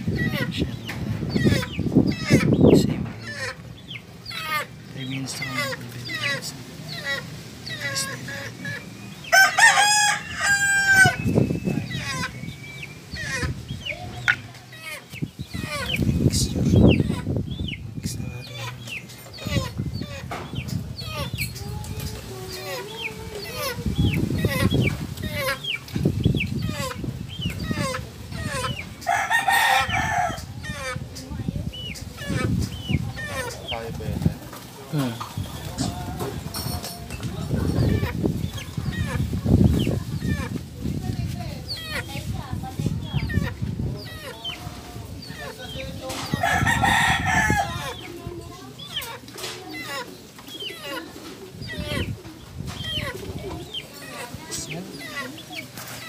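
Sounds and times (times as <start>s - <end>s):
chickens calling: 0.0s - 56.0s
rooster crowing: 9.3s - 11.2s, 29.0s - 30.4s, 46.4s - 48.0s.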